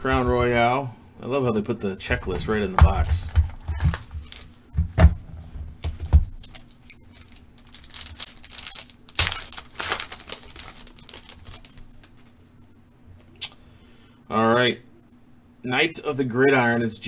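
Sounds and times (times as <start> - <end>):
dull knocks on cardboard box: 2.7 - 6.4
foil pack tearing and crinkling: 3.8 - 4.5, 6.5 - 12.3.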